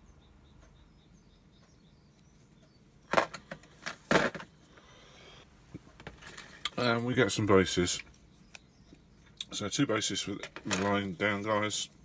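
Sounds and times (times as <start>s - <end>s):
faint bird chirps: 0.0s - 3.1s, 7.4s - 10.4s
plastic clattering on tabletop: 3.1s - 4.5s.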